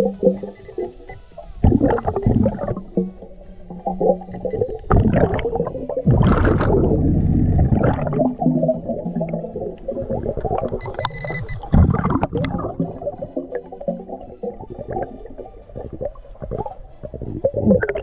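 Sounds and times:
water hiss: 0.0s - 6.8s
underwater bubbles gurgling: 0.0s - 18.0s.

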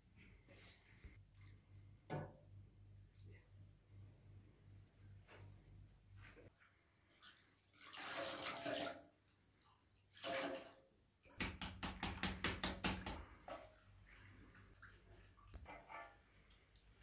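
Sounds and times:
liquid pouring and splashing: 7.6s - 9.1s, 10.0s - 11.0s.

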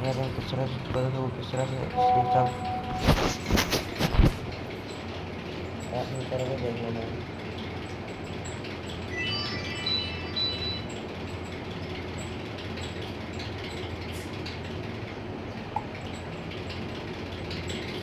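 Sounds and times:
background hum and hiss: 0.0s - 18.0s
high chiming tone: 1.9s - 3.5s, 9.1s - 11.0s.

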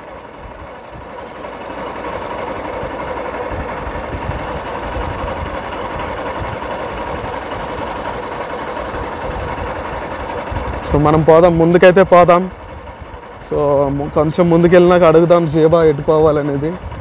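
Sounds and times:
motorcycle engine running: 0.0s - 17.0s
wind rushing over microphone: 3.4s - 7.7s, 9.0s - 11.6s, 15.7s - 17.0s.

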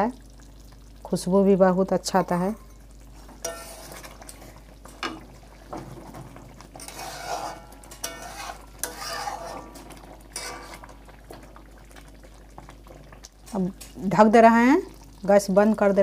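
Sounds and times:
metal spatula scraping pan: 2.6s - 5.2s, 6.7s - 11.0s
spatula clinking against pan: 3.4s - 3.8s, 6.8s - 9.3s.

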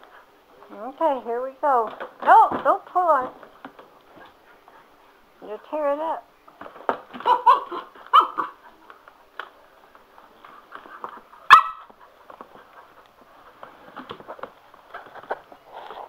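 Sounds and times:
puppy barking and yelping: 7.1s - 8.8s, 11.0s - 12.0s.

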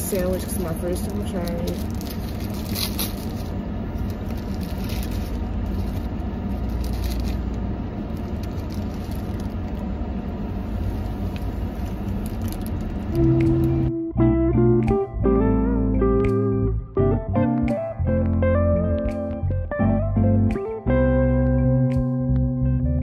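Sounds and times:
paper wrapper crinkling: 0.0s - 9.9s, 10.9s - 13.3s
car engine idling: 0.0s - 13.9s.

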